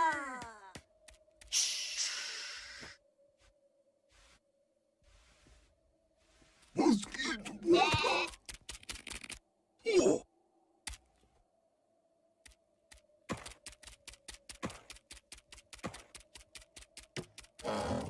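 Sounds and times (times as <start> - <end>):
hooves tapping on hard ground: 12.9 - 17.8.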